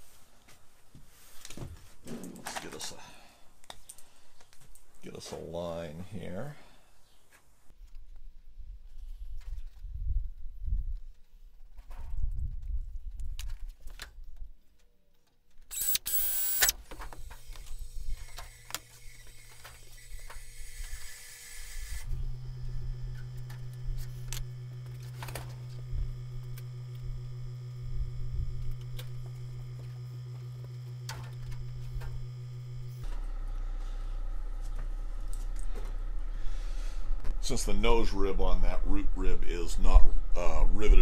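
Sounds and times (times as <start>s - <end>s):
steady low hum: 15.7s - 41.0s
air tool hiss: 15.8s - 22.2s.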